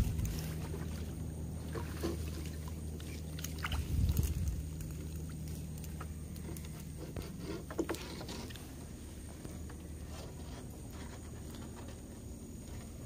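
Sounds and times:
net knocking and rattling on boat: 5.9s - 8.6s.

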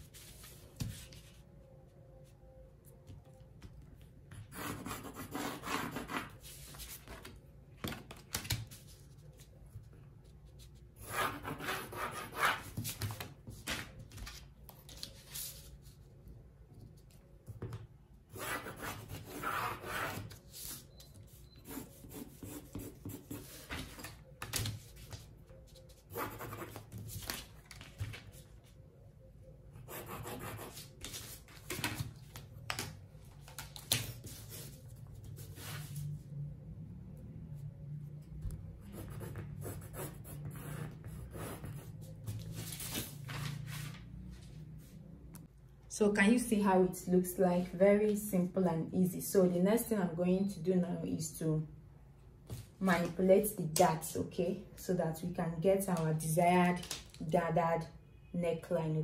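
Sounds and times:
pencil scratching on paper: 4.5s - 6.6s, 10.7s - 12.7s, 18.3s - 20.3s, 21.6s - 23.7s, 26.1s - 26.8s, 29.8s - 30.9s, 38.8s - 42.1s.

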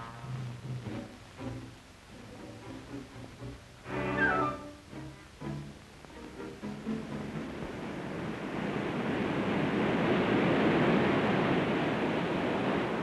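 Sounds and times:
low string notes: 0.0s - 8.2s
surf rushing: 6.8s - 13.0s.

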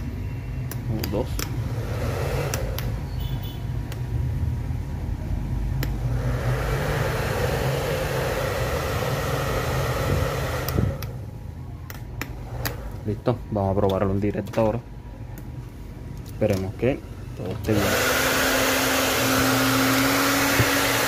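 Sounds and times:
hair dryer motor humming: 1.5s - 3.0s, 5.8s - 11.2s, 17.7s - 21.0s
hair dryer switch clicks: 2.4s - 3.0s, 3.9s - 4.1s, 10.5s - 11.2s.

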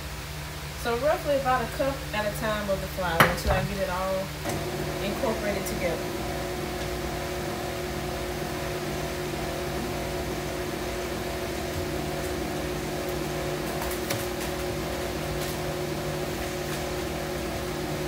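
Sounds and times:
stand mixer beating batter: 4.4s - 18.0s.

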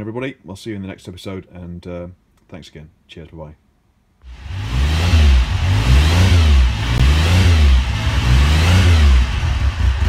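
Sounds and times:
motorcycle engine revving: 4.2s - 10.0s.

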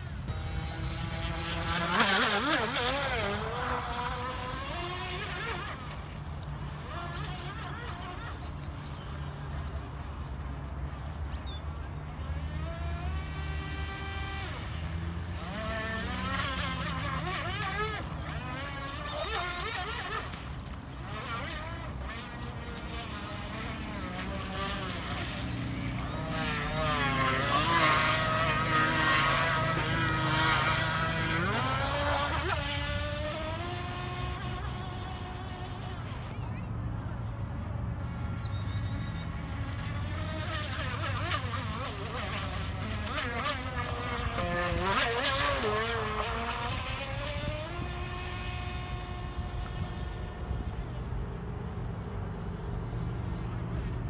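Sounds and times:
electric motor whine: 0.0s - 8.8s, 12.1s - 36.4s, 38.9s - 51.0s
wavering pitch-bending whine: 0.0s - 10.3s, 11.3s - 37.2s, 38.2s - 51.1s.

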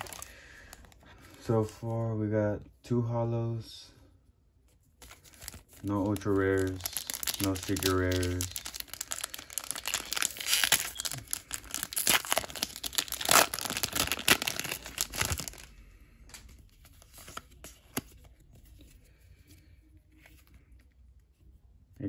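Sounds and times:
foil wrapper tearing and crinkling: 0.0s - 0.3s, 5.0s - 15.7s.

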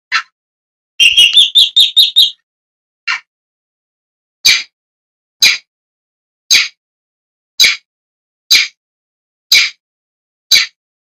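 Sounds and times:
bird giving harsh calls: 1.0s - 2.4s.

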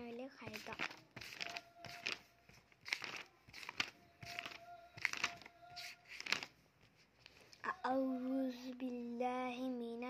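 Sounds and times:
book pages turning: 0.4s - 7.6s.

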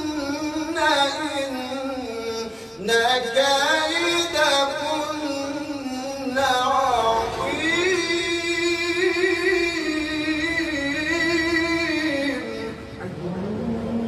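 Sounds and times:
man chanting melodic recitation: 0.0s - 14.0s.

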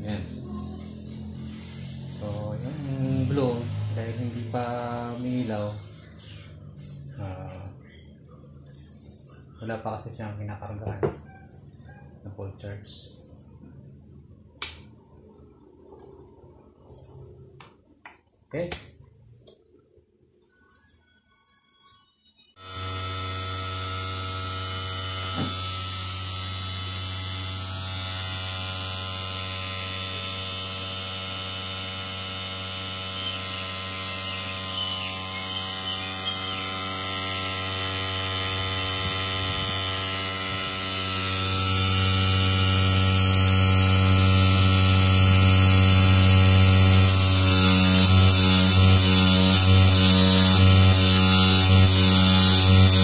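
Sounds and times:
electrical hum: 22.6s - 53.0s.

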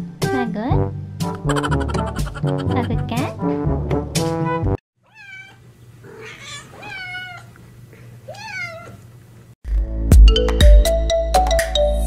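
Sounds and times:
background music: 0.0s - 4.8s
cat meowing: 5.0s - 7.6s, 8.3s - 9.1s.

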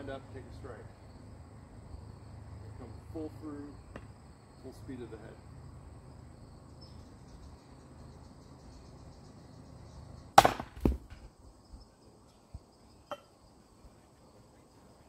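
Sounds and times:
axe striking log: 10.4s - 11.2s.

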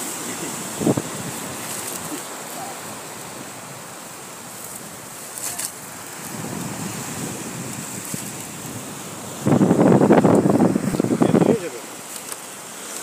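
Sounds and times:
wind on microphone: 0.0s - 11.8s
surf washing on beach: 0.0s - 13.0s
brief rustle: 1.6s - 2.3s, 4.6s - 5.8s, 12.0s - 13.0s.

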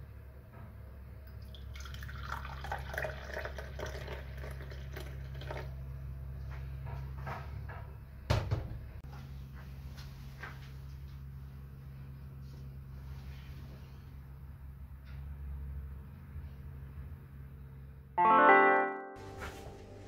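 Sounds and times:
liquid dripping: 1.3s - 5.8s
tea pouring into cup: 1.4s - 5.8s.

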